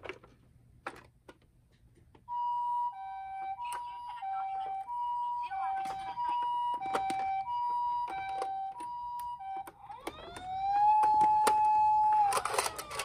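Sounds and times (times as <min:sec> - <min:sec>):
toy ambulance siren: 0:02.3 - 0:13.0
plastic toy clicks: 0:09.9 - 0:13.0.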